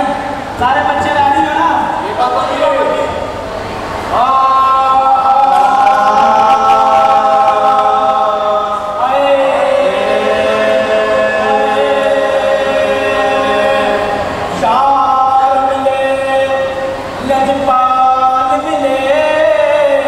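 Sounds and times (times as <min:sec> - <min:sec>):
men chanting in held notes: 0:04.1 - 0:20.0.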